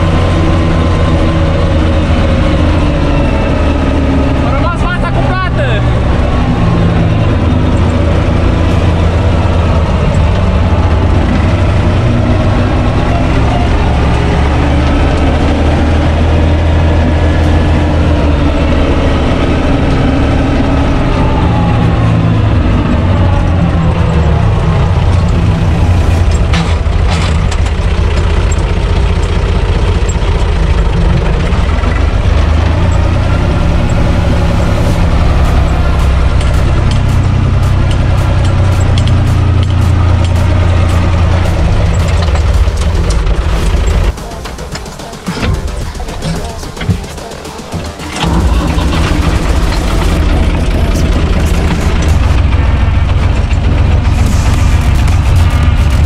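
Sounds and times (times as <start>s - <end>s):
tractor diesel engine running: 0.0s - 56.0s
sharp knocks and rattles: 25.0s - 34.0s, 34.8s - 56.0s.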